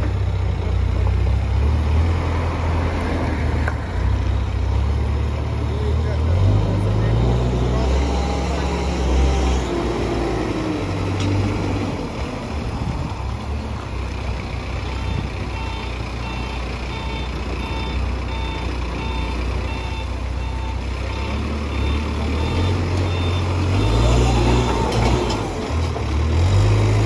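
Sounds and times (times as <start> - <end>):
diesel engine running: 0.0 - 27.0
reversing alarm beeping: 15.0 - 24.3.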